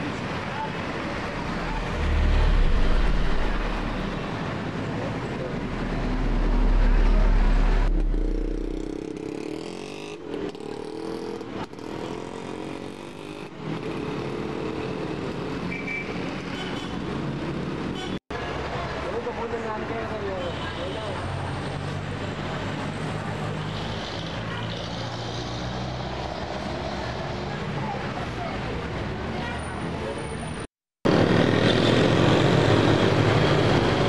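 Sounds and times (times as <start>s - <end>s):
passing traffic hum: 0.0s - 34.0s
motorcycle tricycle engine: 0.7s - 15.5s.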